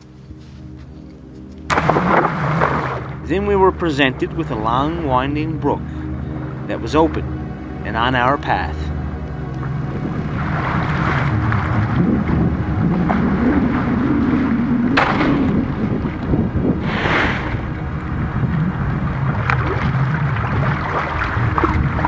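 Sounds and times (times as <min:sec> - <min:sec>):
water sloshing and splashing: 0:01.7 - 0:07.8, 0:08.9 - 0:22.0
wind buffeting microphone: 0:09.1 - 0:22.0.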